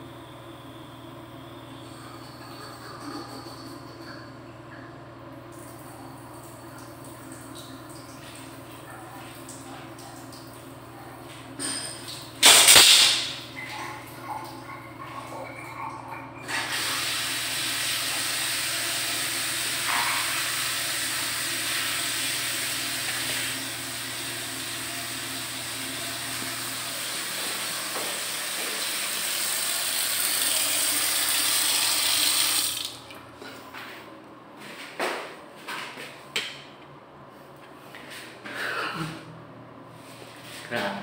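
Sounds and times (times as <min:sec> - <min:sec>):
faucet water running into basin: 0:12.0 - 0:33.2.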